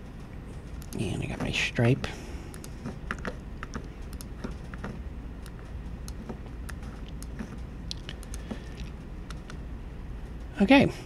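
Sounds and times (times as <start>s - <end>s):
low hum: 0.0s - 11.0s
mouse and keyboard clicks: 2.5s - 9.6s.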